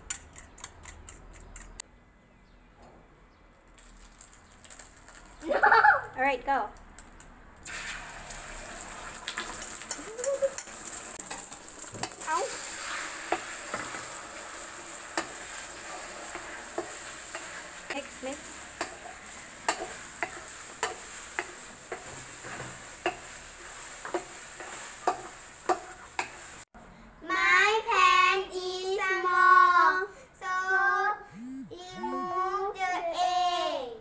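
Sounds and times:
eggs sizzling in oil: 7.6s - 26.7s
wooden spatulas scraping pans: 15.1s - 26.6s.

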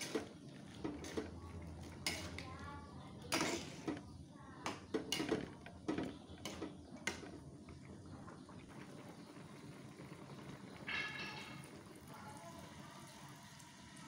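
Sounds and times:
spatula knocking and scraping wok: 0.0s - 2.6s, 3.2s - 7.4s, 10.9s - 11.7s.

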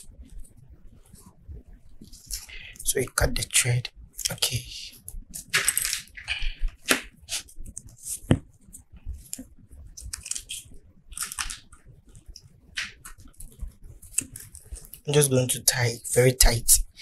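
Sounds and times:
paper rustling: 10.0s - 11.7s.

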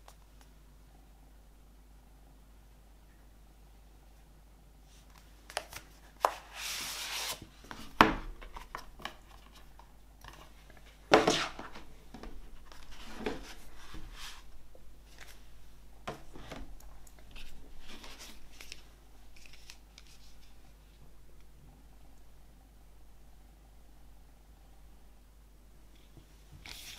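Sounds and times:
card and paper sliding: 6.2s - 7.8s.

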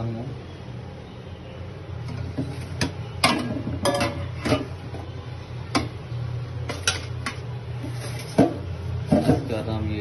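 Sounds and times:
steel kitchenware clinking: 2.1s - 4.8s.

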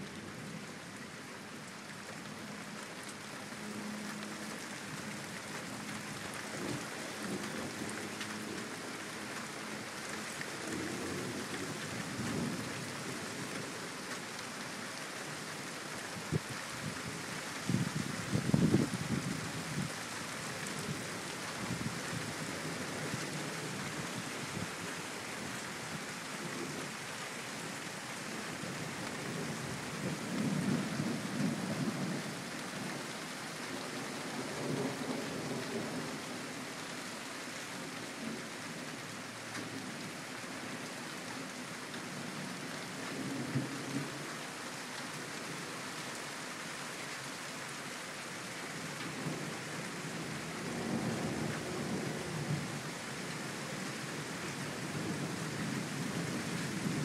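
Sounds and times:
steady rain: 0.0s - 57.0s.

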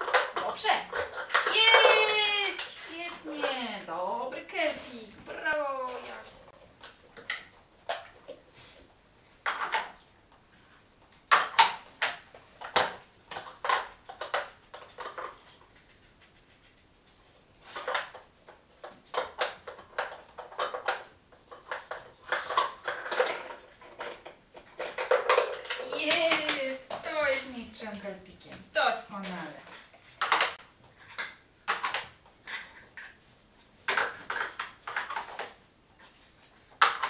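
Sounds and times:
plastic puzzle pieces clattering: 18.9s - 27.2s, 33.8s - 35.6s.

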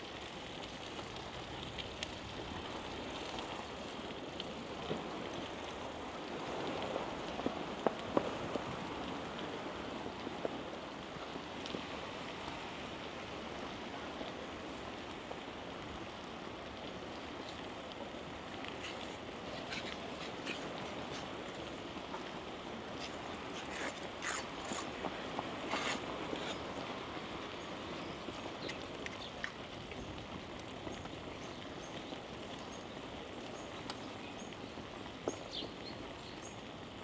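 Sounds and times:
bicycle tyre road noise: 14.6s - 32.6s.

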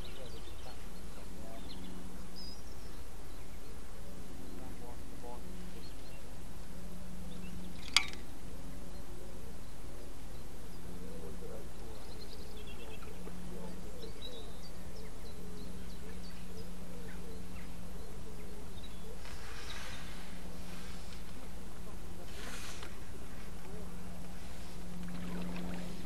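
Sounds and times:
bird chirps: 0.0s - 6.4s, 7.2s - 20.3s
low background rumble: 0.0s - 26.0s.

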